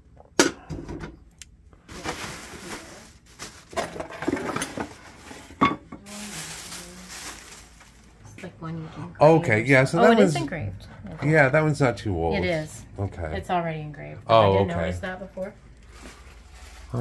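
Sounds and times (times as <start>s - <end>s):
rustling: 1.9s - 8.3s, 15.7s - 17.0s
hard objects knocking and clattering: 3.7s - 6.0s.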